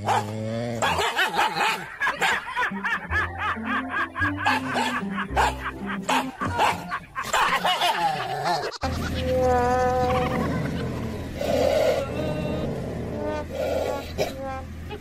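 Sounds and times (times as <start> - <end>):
person laughing: 1.2 - 11.2
background music with bass: 2.4 - 15.0.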